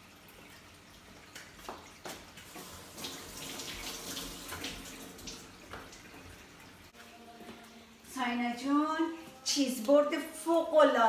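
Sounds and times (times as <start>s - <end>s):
kitchen tap running: 0.0s - 6.9s.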